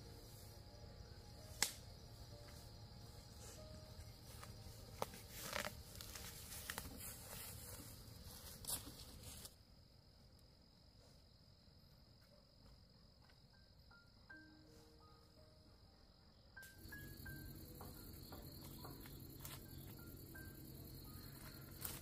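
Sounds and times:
insects droning: 0.0 - 22.0
rustles and sharp crackles: 3.4 - 9.6.

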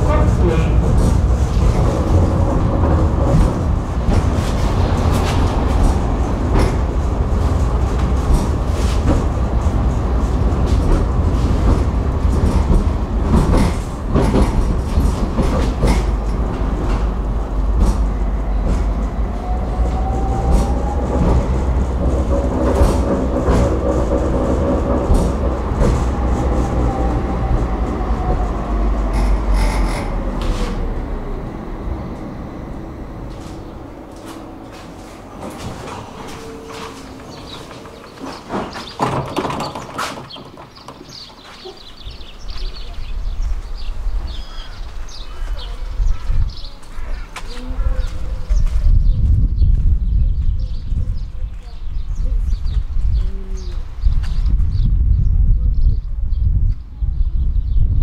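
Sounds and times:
wheels clicking on track: 0.0 - 44.0
tram motor whine: 0.0 - 51.0
tram rumbling on rails: 0.0 - 58.0.

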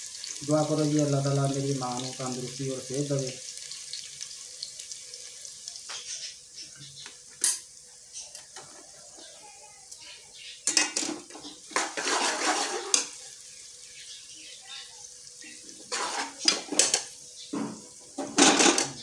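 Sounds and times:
onions sizzling: 0.0 - 19.0
ladle scraping a pot: 11.7 - 13.1, 15.8 - 17.1.

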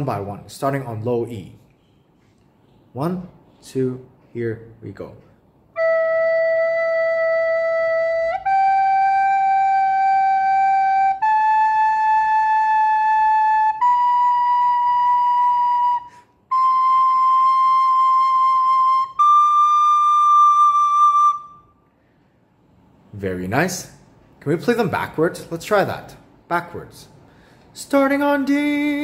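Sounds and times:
recorder playing held notes: 5.8 - 21.7.

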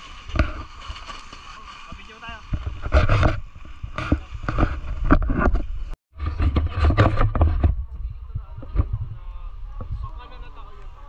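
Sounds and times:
sliding over snow: 0.0 - 11.0
wind buffeting microphone: 2.4 - 11.0.

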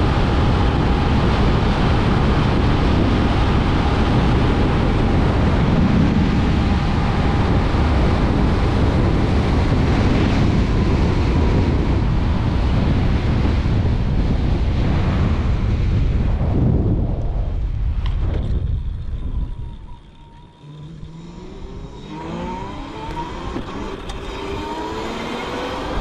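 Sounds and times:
wind buffeting microphone: 0.0 - 26.0
faint thin whine: 17.2 - 25.9.

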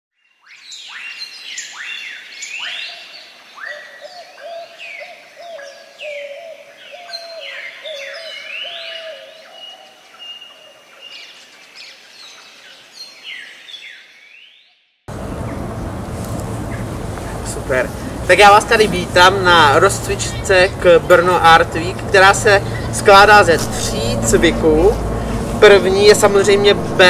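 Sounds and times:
birds chirping and whistling: 0.4 - 15.7, 19.8 - 25.6.

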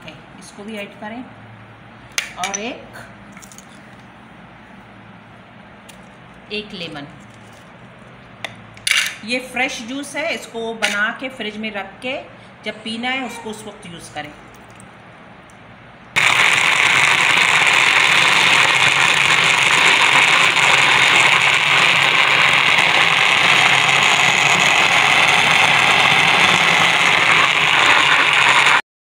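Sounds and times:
electric blender running: 16.2 - 28.8.

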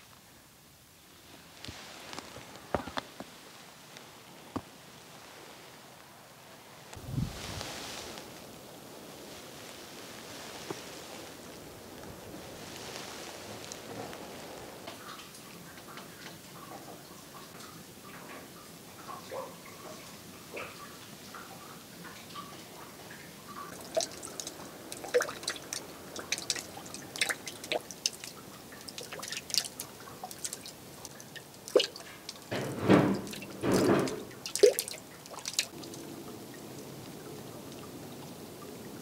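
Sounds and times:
meltwater dripping: 10.3 - 39.0
water rushing: 21.8 - 39.0.

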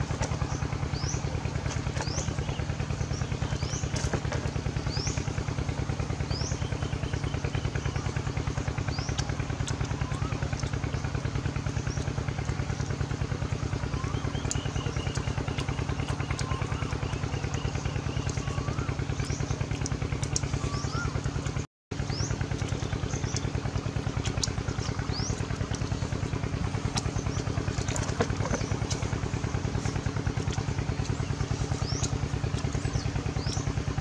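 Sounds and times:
small engine throbbing: 0.0 - 34.0
bird chirps: 13.8 - 21.4, 30.8 - 33.8.

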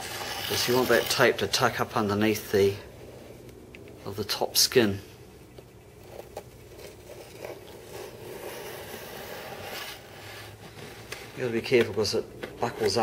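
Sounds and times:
small blade scraping fibreglass: 0.0 - 1.6, 6.0 - 11.4.

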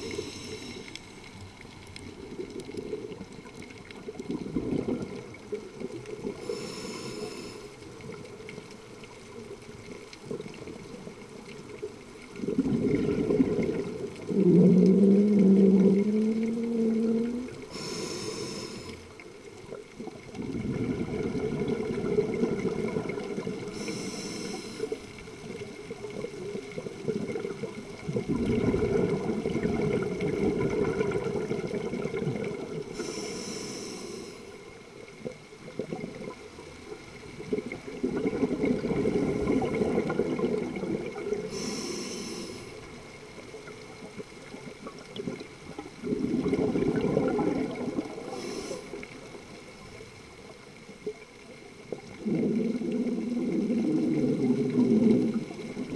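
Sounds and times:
bubbling exhales: 0.0 - 1.0, 2.0 - 8.6, 12.4 - 36.5, 37.2 - 42.9, 44.4 - 49.4, 51.9 - 55.9
hissing regulator inhales: 0.0 - 1.2, 6.4 - 7.8, 17.7 - 19.1, 23.7 - 25.1, 32.9 - 34.6, 41.5 - 42.8, 48.2 - 49.1.

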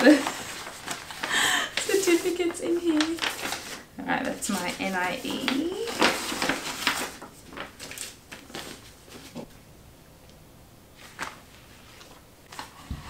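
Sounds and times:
paper rustling and crackling: 0.0 - 9.6, 11.0 - 13.0.

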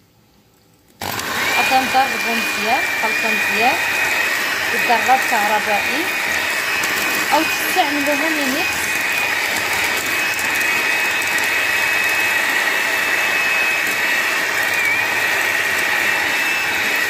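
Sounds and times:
electric hand mixer whipping: 1.0 - 17.0.

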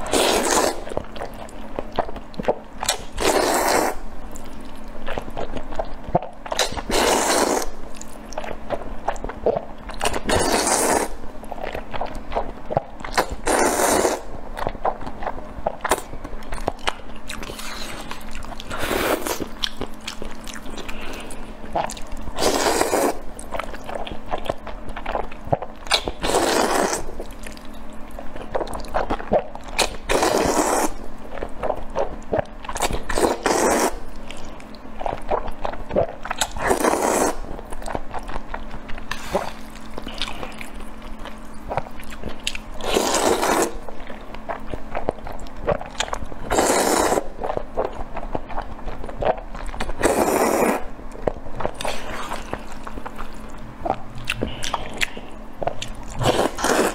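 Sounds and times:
person slurping noodles: 0.0 - 0.8, 3.2 - 4.0, 6.6 - 7.8, 10.2 - 11.2, 13.2 - 14.3, 18.7 - 19.4, 21.8 - 23.2, 26.2 - 27.1, 30.1 - 31.0, 33.1 - 34.0, 36.6 - 37.5, 42.8 - 43.8, 46.5 - 47.3, 50.0 - 50.8, 56.2 - 56.9
wet chewing and lip-smacking: 0.0 - 56.9.

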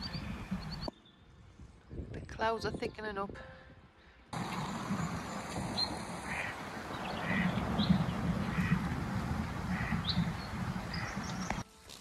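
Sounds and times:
wind on microphone: 0.0 - 11.6
higher bird chirps: 4.4 - 8.8
birds calling: 4.4 - 11.6.

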